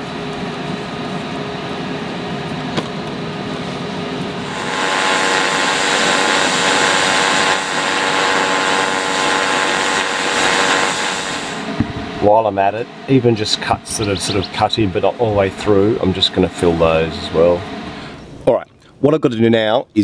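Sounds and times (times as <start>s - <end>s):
machine hum: 0.0s - 19.0s
welding arc hissing: 4.3s - 18.2s.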